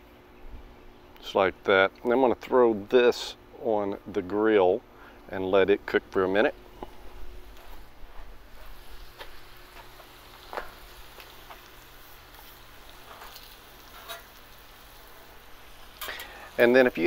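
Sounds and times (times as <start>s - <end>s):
food sizzling on a griddle: 7.4s - 17.0s
metal spatulas clicking on griddle: 13.1s - 14.4s, 16.0s - 16.3s.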